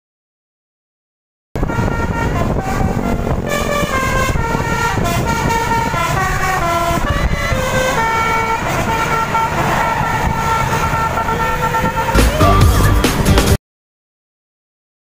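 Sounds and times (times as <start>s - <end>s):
multi-tone bus horn playing tune: 1.6s - 13.6s
wind on microphone: 1.6s - 13.6s.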